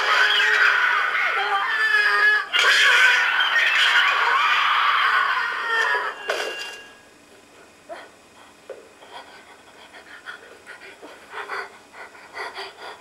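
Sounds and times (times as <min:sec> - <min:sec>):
woman panting in terror: 0:09.1 - 0:13.0.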